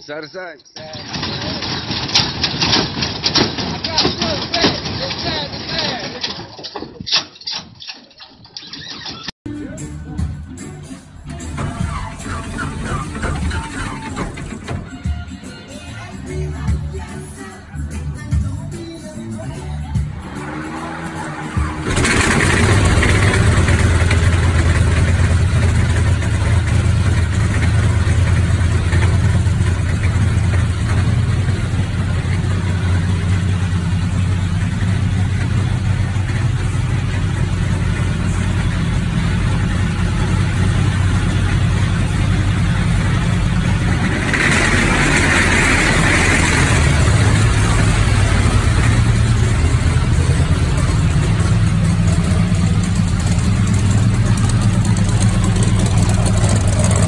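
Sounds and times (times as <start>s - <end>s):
aircraft engine rumbling: 19.7s - 57.0s.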